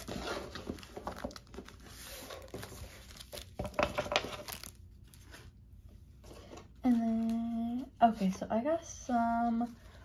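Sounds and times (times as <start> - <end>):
packaging crinkling: 0.0 - 5.4.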